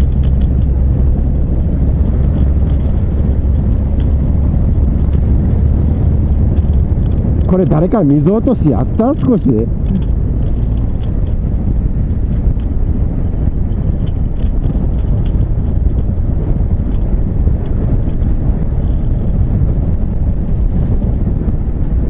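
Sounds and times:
motorcycle engine: 0.0 - 7.5
road noise: 0.0 - 22.0
wind rushing on microphone: 0.0 - 22.0.

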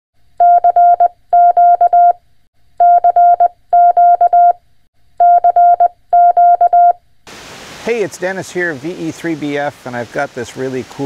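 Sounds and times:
morse code tone: 0.4 - 2.2, 2.8 - 4.6, 5.2 - 7.0.

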